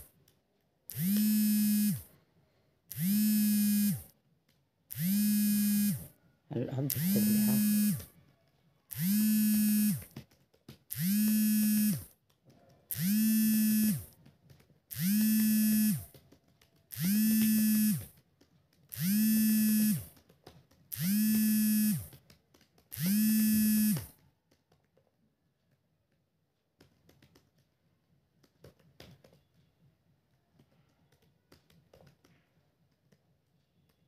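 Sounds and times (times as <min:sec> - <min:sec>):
small motor buzzing in pulses: 0:00.9 - 0:02.1, 0:02.9 - 0:04.2, 0:04.9 - 0:06.2, 0:06.8 - 0:08.2, 0:08.9 - 0:10.2, 0:10.9 - 0:12.1, 0:12.9 - 0:14.2, 0:14.9 - 0:16.2, 0:16.9 - 0:18.2, 0:18.9 - 0:20.2, 0:20.9 - 0:22.1, 0:22.9 - 0:24.2.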